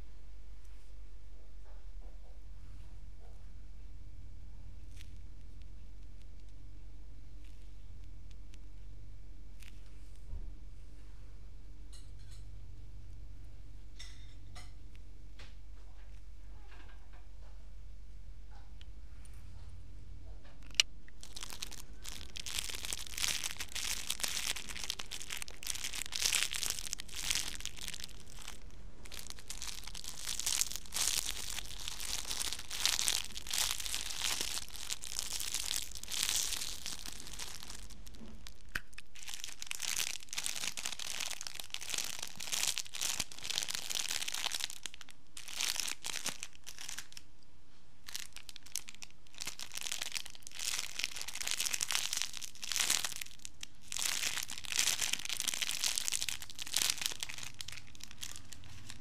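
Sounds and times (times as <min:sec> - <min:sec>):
plastic bags crinkling: 0:20.7 - 0:47.3, 0:48.0 - 0:59.0.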